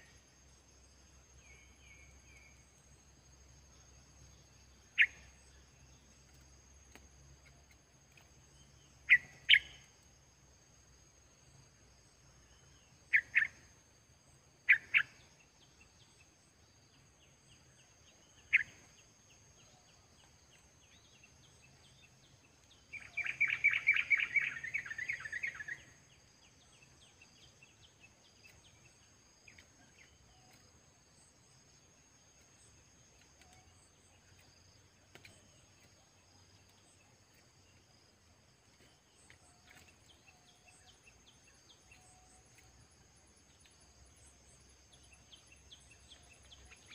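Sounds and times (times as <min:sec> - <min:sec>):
bird calling: 0:09.1 - 0:09.9, 0:22.9 - 0:26.0.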